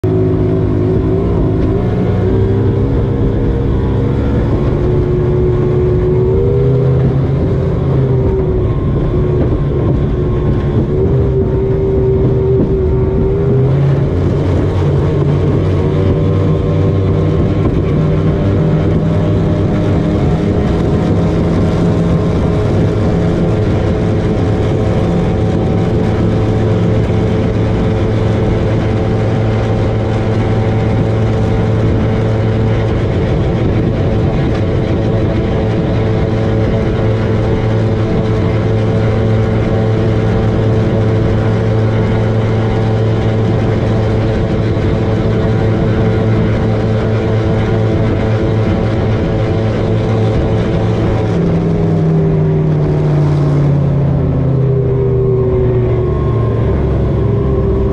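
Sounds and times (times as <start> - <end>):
motorboat engine running hard: 0.0 - 57.9
rushing noise: 0.0 - 57.9.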